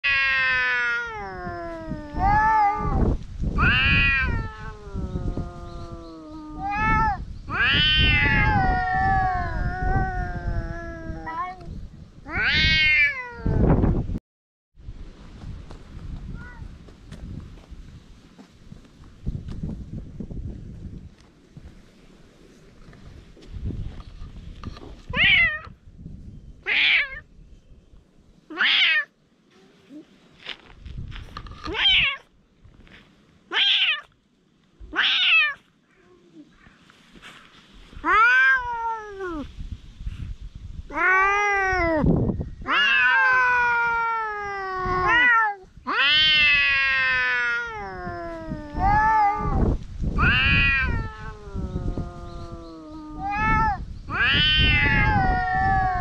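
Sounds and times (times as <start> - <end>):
cats yowling: 0.0 - 3.0, 3.6 - 11.7, 12.3 - 13.6, 25.1 - 25.7, 26.7 - 27.2, 28.5 - 29.1, 34.9 - 35.6, 38.0 - 39.5, 40.9 - 56.0.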